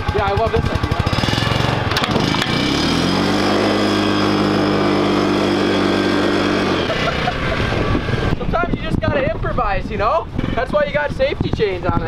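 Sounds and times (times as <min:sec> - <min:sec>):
utility vehicle engine revving: 0:00.0 - 0:08.6.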